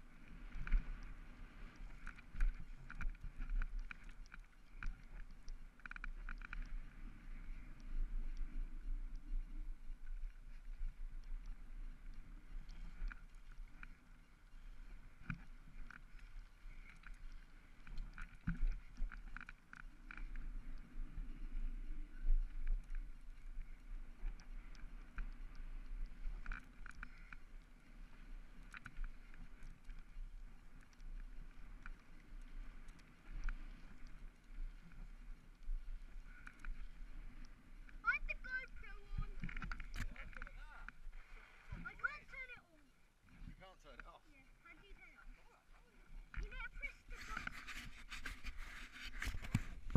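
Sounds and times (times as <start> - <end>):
wind rumble on microphone: 46.2 - 49.9.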